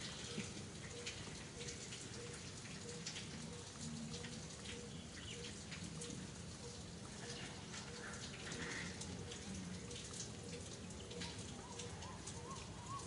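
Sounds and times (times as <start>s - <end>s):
water drops pattering: 0.0s - 13.0s.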